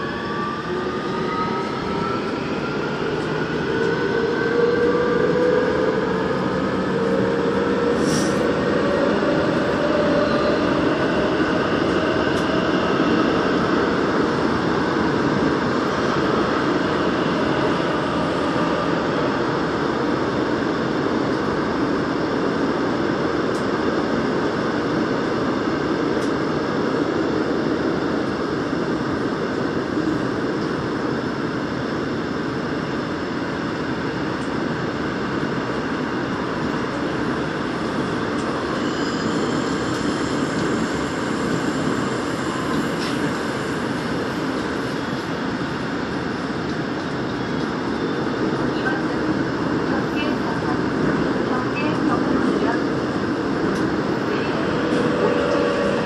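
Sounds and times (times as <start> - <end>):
train wheels rumbling on rail: 0.0 - 56.0
faint high whine: 52.4 - 56.0.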